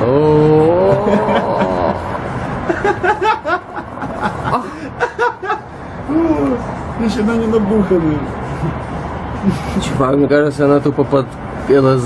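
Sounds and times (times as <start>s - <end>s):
person laughing: 0.4s - 6.3s.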